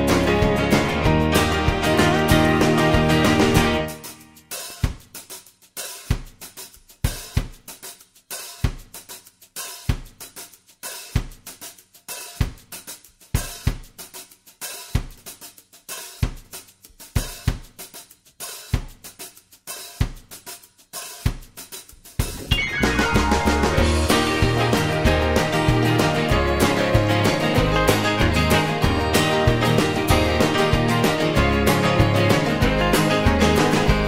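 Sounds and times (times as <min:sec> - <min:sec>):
drum kit beat: 0:00.0 - 0:34.0.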